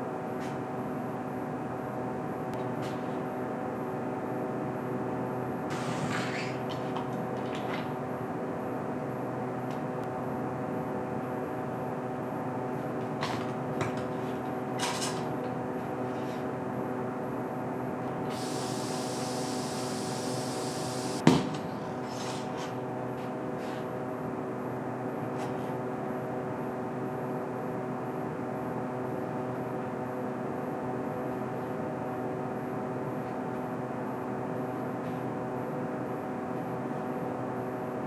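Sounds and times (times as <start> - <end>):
hiss: 5.7 - 6.5, 18.3 - 21.2
machine hum: 15.4 - 25.0.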